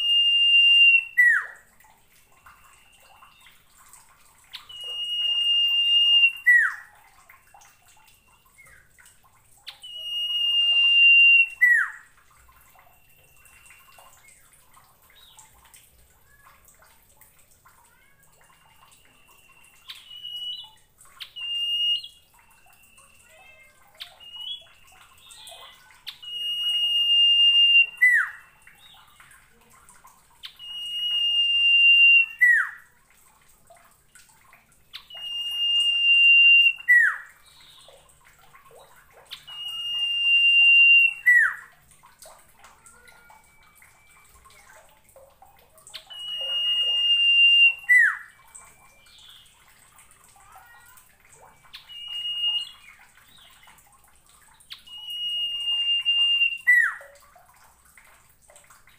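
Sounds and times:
bird whistling song: 0.0 - 1.6, 2.3 - 3.7, 4.4 - 6.9, 7.7 - 9.0, 9.6 - 15.6, 18.4 - 29.3, 30.4 - 32.9, 34.9 - 38.0, 39.2 - 41.7, 42.9 - 44.7, 45.9 - 49.8, 51.5 - 53.8, 54.7 - 57.2
faint small bird calls: 17.7 - 27.1.

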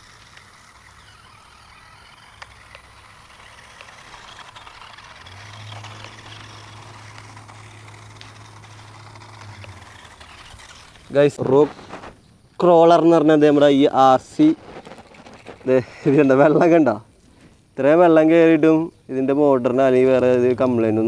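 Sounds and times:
small clicks: 0.0 - 12.0
steady low hum: 0.0 - 16.0
toy truck driving over mud: 0.0 - 17.0.

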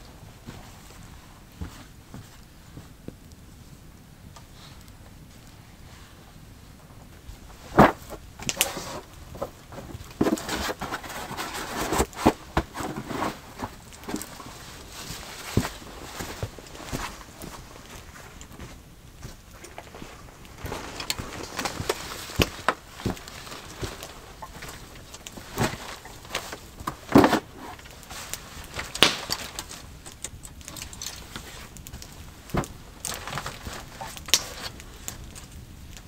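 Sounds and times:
footsteps: 7.0 - 35.2.

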